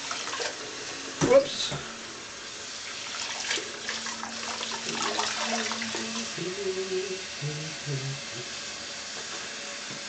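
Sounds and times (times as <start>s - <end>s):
tap water running into a tub: 0.0s - 10.0s
water splashing: 2.8s - 6.4s.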